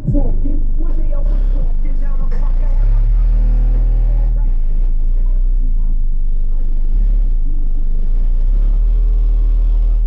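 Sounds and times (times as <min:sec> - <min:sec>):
deep steady bass note: 0:00.0 - 0:10.0
muddy music: 0:00.0 - 0:10.0.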